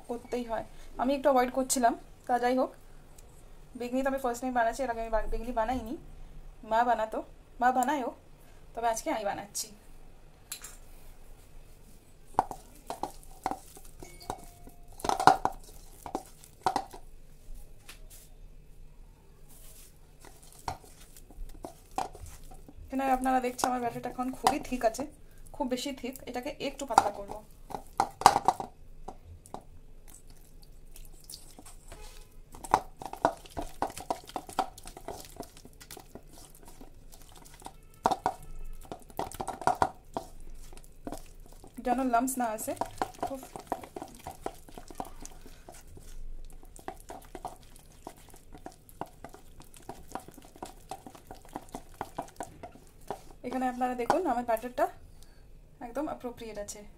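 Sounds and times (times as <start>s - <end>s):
hand knocking steel bowl: 12.4s - 17.0s, 26.8s - 29.7s, 31.9s - 54.7s.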